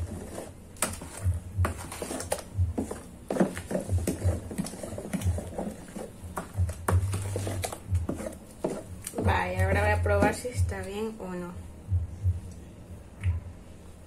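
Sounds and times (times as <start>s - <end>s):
spoon stirring dough in plastic bowl: 0.0s - 11.1s.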